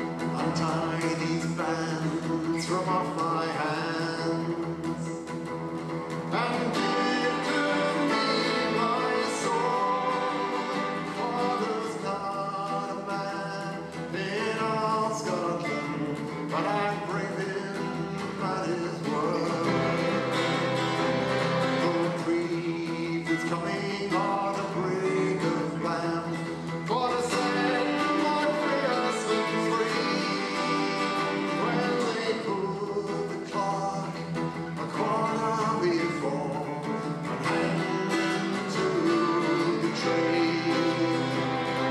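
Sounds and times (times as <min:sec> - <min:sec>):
man singing: 0:00.0 - 0:41.9
strummed acoustic guitar: 0:00.0 - 0:41.9
violins bowing: 0:06.3 - 0:11.9.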